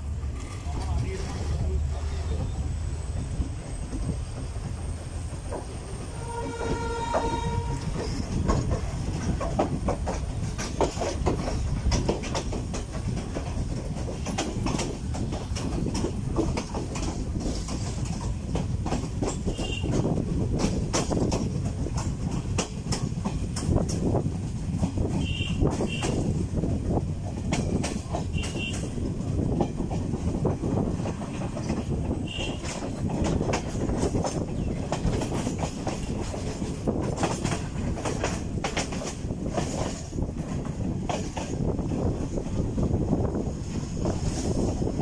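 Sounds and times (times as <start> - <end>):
passenger train pulling out: 0.0 - 45.0
train wheels clacking over rail joints: 0.0 - 45.0
train horn blast: 6.2 - 8.1, 19.5 - 20.0, 25.2 - 26.2, 28.3 - 28.9, 32.2 - 32.7.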